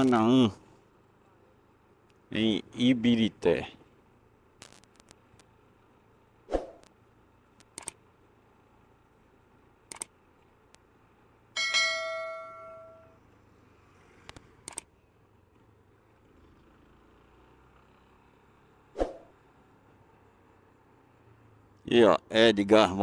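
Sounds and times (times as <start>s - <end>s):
metallic bell-like clang: 11.6s - 13.2s.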